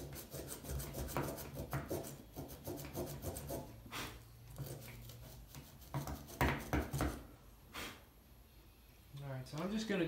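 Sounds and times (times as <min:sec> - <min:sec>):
rubbing and scraping connector: 0:04.5 - 0:07.2.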